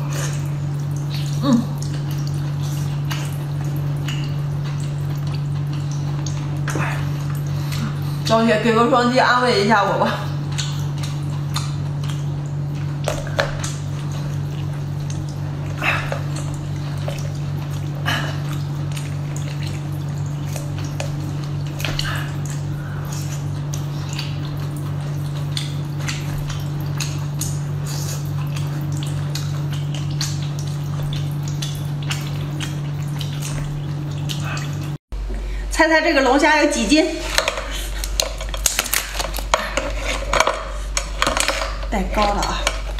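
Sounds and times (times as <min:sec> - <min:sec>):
wet chewing and smacking: 0:00.0 - 0:08.3, 0:10.1 - 0:35.0, 0:37.2 - 0:42.9
steady low hum: 0:00.0 - 0:42.9
lobster shell crackling: 0:37.1 - 0:42.9.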